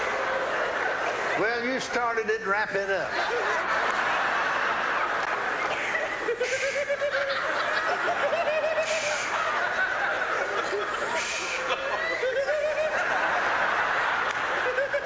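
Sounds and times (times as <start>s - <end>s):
crowd laughing: 0.0s - 15.0s
individual wavering laughs: 3.1s - 4.0s, 5.6s - 15.0s.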